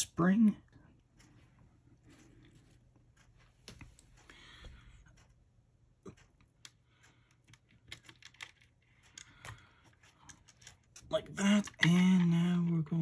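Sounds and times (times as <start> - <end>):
small plastic parts clicking: 6.6 - 13.0.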